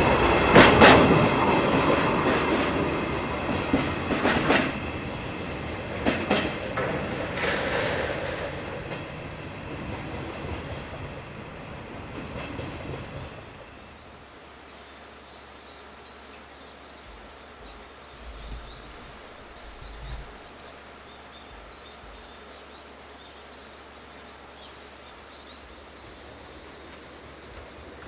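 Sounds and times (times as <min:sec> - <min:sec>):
high chirping wildlife calls: 0:14.0 - 0:27.8.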